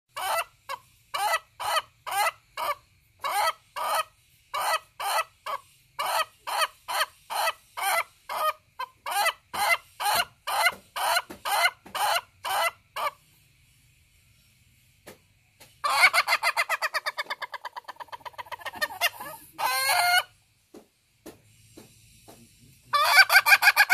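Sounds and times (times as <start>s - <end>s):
rooster laughing crow: 23.0s - 23.9s.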